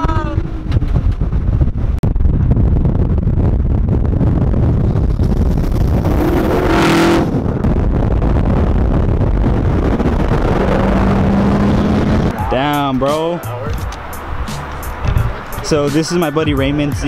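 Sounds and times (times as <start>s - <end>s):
steady engine tone: 0.0s - 15.8s
road and wind noise: 0.0s - 17.0s.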